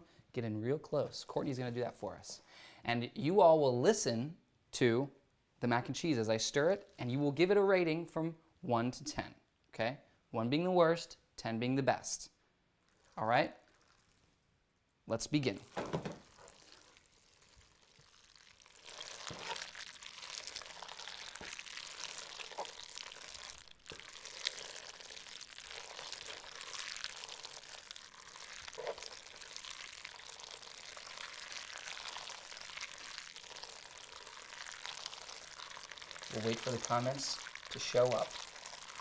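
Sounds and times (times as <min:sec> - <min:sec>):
wet clicky stirring: 0:15.7 - 0:39.0.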